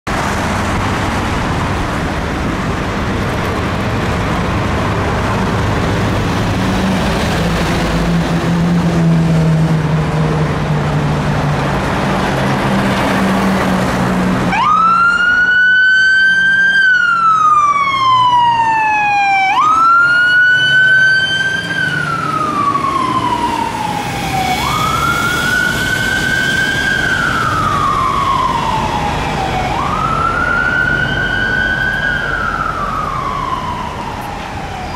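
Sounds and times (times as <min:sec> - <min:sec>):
wailing siren: 0:14.4 - 0:34.9.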